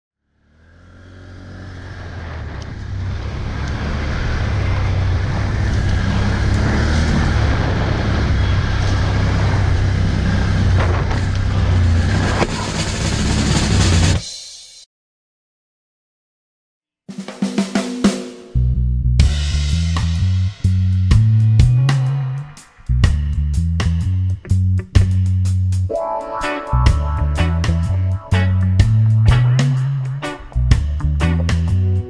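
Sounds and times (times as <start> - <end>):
quad bike engine running: 0.2 - 14.2.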